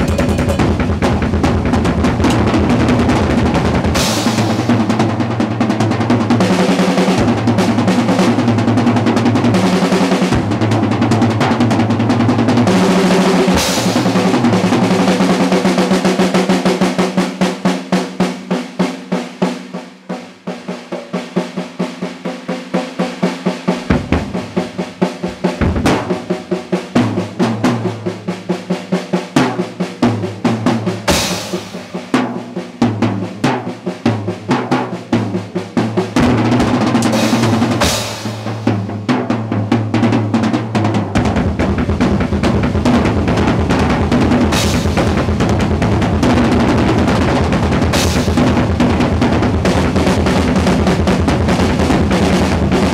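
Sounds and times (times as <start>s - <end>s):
drum kit rolls and strokes: 0.0s - 52.9s
cymbal crashes: 23.7s - 27.0s.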